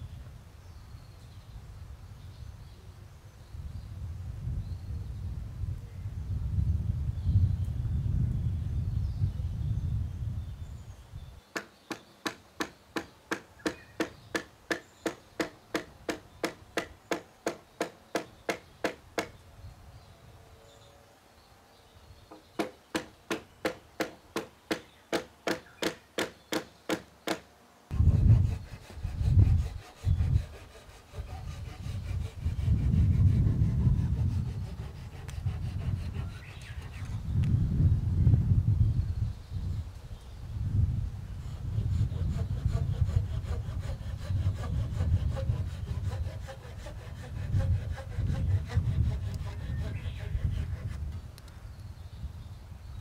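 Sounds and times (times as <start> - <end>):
sawing on wood: 11.6 - 19.3, 22.3 - 37.2, 41.4 - 51.2
sharp wooden clicks: 22.3 - 27.5.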